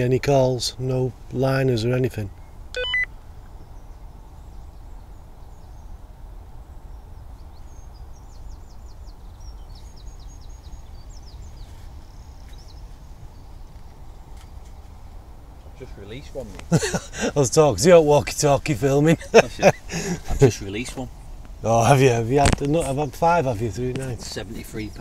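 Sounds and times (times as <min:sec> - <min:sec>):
songbird chirping: 0:00.0 - 0:25.0.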